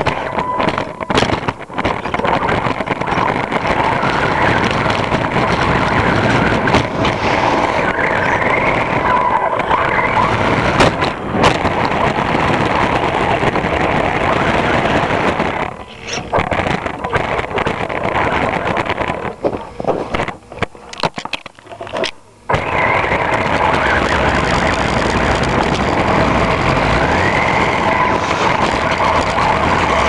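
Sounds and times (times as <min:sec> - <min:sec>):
rattle of chassis and tyres: 0:00.0 - 0:30.0
electric motor whine: 0:21.7 - 0:30.0.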